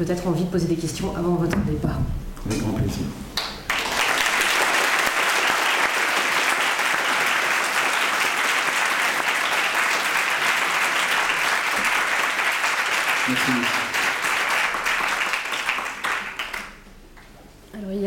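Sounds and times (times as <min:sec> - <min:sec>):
audience applauding: 0:03.4 - 0:17.3.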